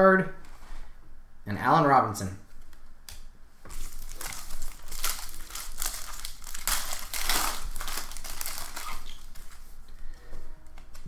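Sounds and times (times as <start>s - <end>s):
plastic wrapper crinkling: 2.6s - 11.0s.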